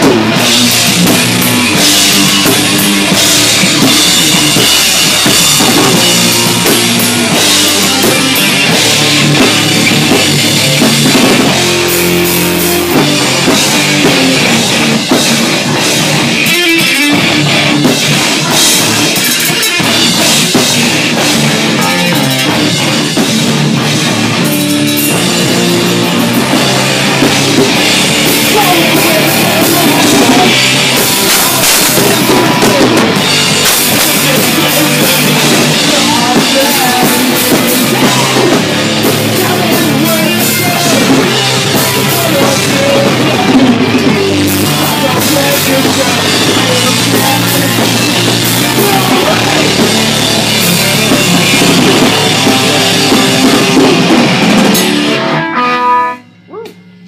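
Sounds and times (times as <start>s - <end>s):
bass guitar: 0.0s - 57.0s
drum kit: 0.0s - 57.0s
electric guitar: 0.0s - 57.0s.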